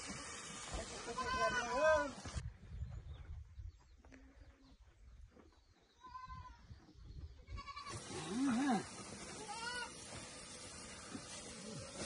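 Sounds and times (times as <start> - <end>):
livestock bleating: 1.0 - 2.1, 6.0 - 6.6, 7.5 - 10.0.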